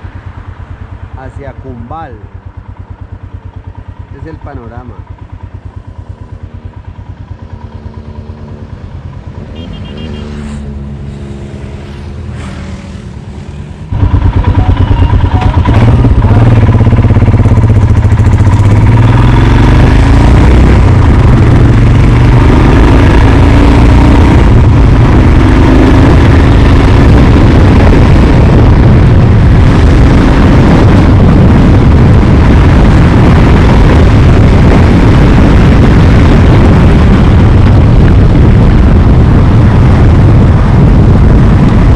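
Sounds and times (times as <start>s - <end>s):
motorcycle engine running: 0.0s - 41.9s
wind noise on microphone: 10.6s - 41.9s.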